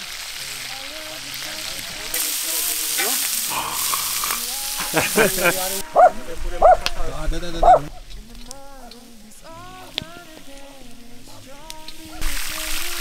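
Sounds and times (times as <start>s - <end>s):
food sizzling on a griddle: 0.0s - 13.0s
person speaking: 0.4s - 8.3s.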